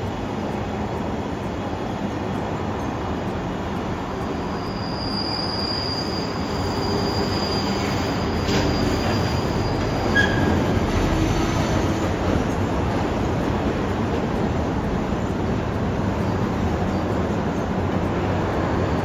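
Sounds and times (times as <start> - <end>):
train rumble: 0.0 - 19.0
train wheels squealing: 4.0 - 12.5.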